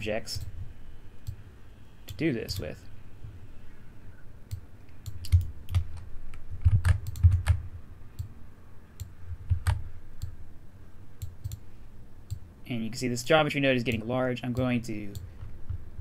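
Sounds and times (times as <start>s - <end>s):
keyboard keystrokes: 4.5s - 7.6s
mouse clicks: 11.2s - 11.6s.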